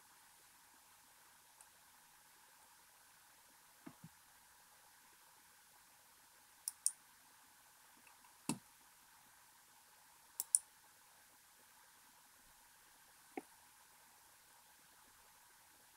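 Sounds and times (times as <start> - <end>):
faint hiss: 0.0 - 15.9
sharp clicks: 6.7 - 7.0, 10.4 - 10.6.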